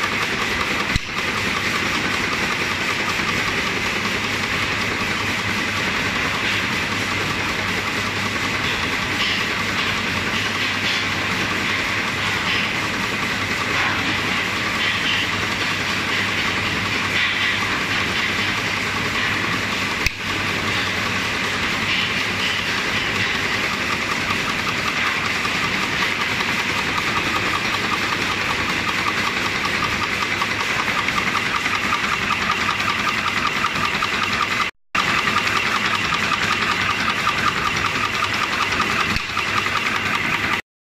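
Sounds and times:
machine clattering: 0.0 - 40.6.

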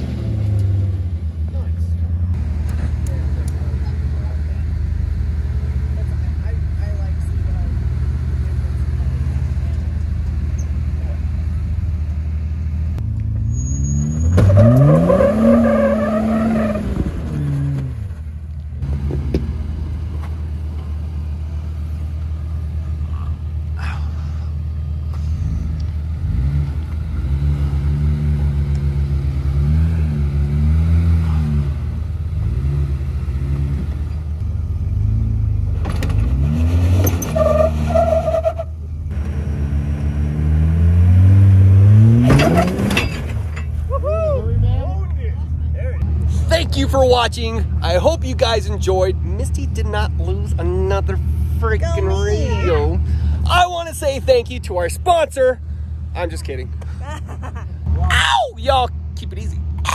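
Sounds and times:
engine revving under load: 0.0 - 12.0, 12.9 - 18.2, 25.0 - 43.5.

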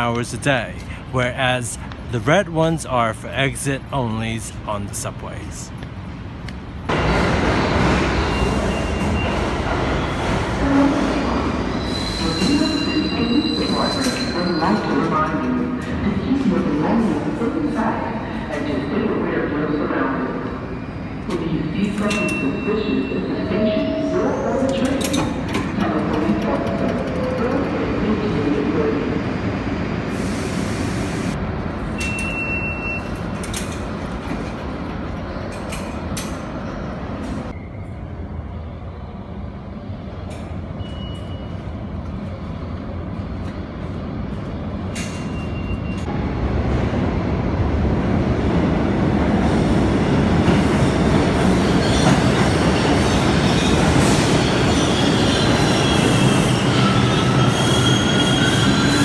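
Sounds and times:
subway train rumble: 0.0 - 59.0
wheels squealing on rails: 11.6 - 15.2, 51.4 - 59.0.

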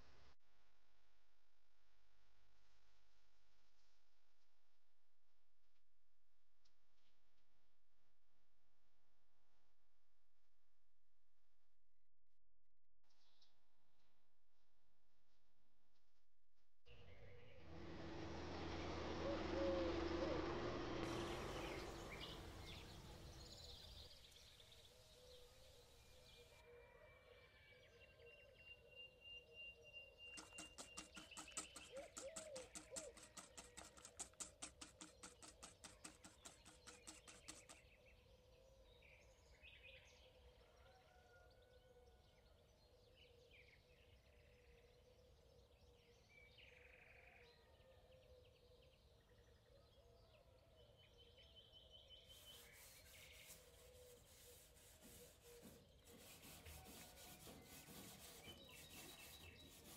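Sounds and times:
small birds chirping: 17.0 - 26.6, 29.8 - 40.1, 48.8 - 59.9
rhythmic scraping: 30.4 - 37.8, 52.7 - 59.9.

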